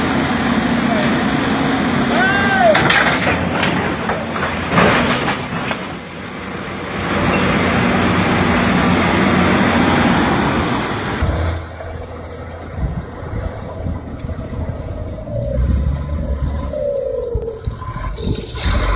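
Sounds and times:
heavy metal clanks and crashes: 2.7s - 6.2s.

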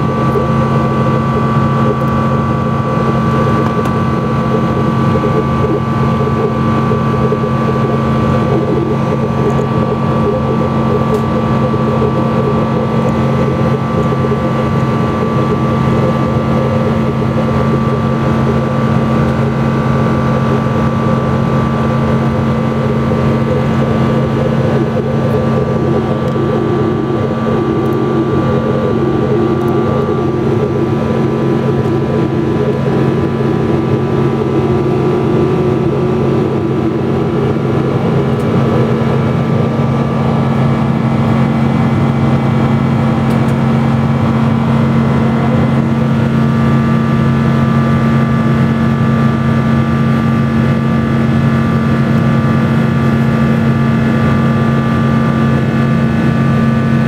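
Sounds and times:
steady tones: 0.0s - 49.2s
airplane cabin drone: 0.0s - 57.0s.

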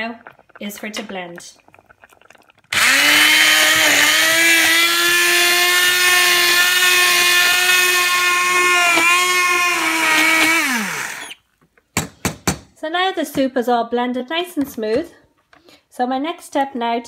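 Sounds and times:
immersion blender motor whine: 2.7s - 11.4s.

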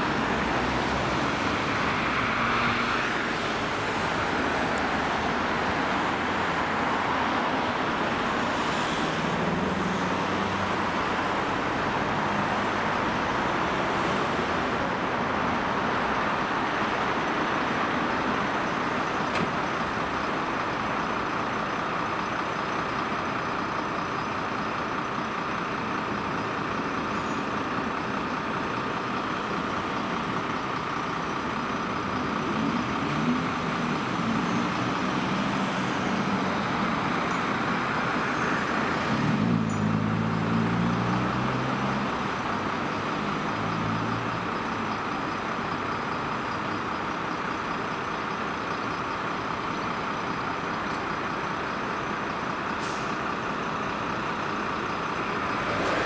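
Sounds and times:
fire truck diesel engines running: 0.0s - 56.0s
air brake hiss: 52.8s - 53.2s.

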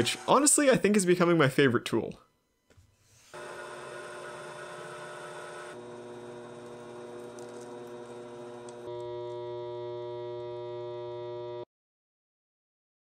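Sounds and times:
lathe motor hum and whine: 3.3s - 11.7s.

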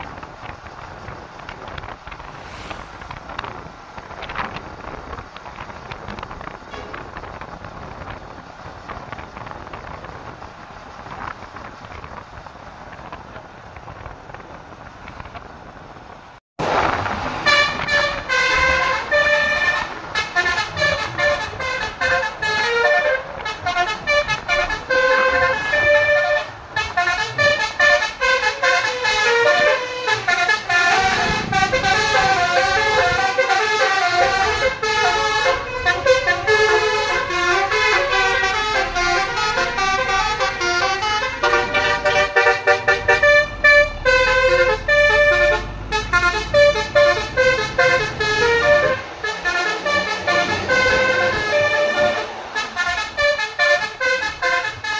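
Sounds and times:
multi-trumpet bus horn melody: 17.4s - 54.9s.

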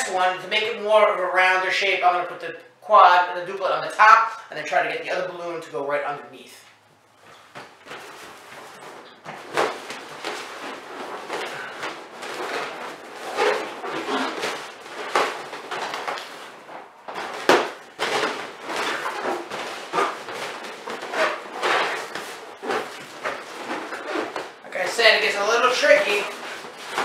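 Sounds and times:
balloons rubbing and bumping: 7.1s - 27.0s.

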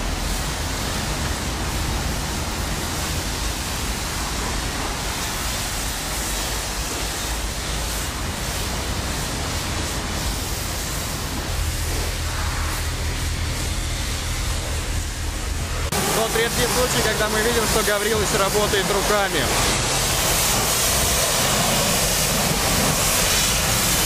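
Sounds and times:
pressure washer spray hiss: 0.0s - 24.0s
low hum: 9.8s - 24.0s.

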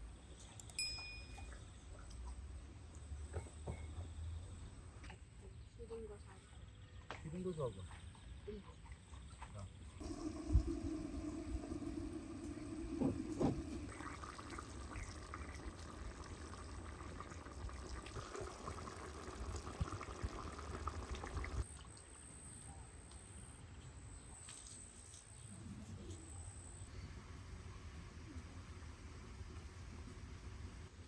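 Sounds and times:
liquid pouring into vessel: 10.0s - 21.6s.

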